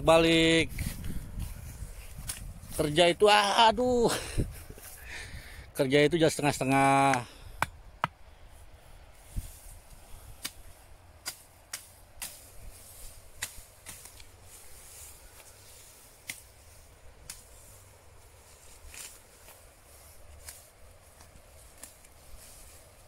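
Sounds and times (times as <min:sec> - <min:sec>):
sickle cutting grass stalks: 0:00.1 - 0:03.5, 0:08.5 - 0:23.0.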